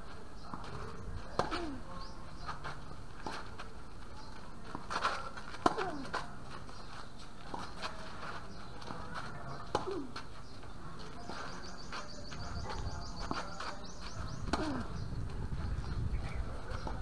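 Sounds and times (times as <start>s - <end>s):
tennis ball hit by racket: 1.3s - 1.8s, 4.7s - 6.2s, 9.6s - 10.2s
bird chirping trill: 10.4s - 16.9s.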